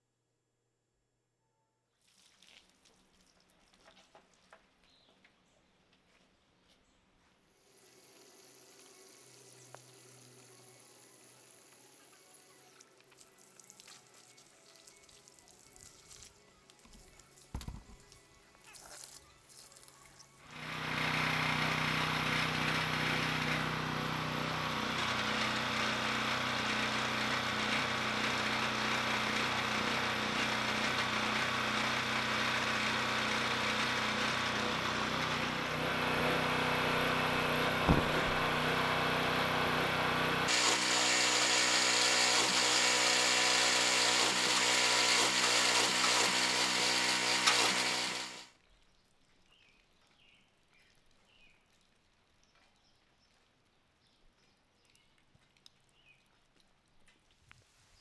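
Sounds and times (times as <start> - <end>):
pressure washer running: 20.4 - 48.5.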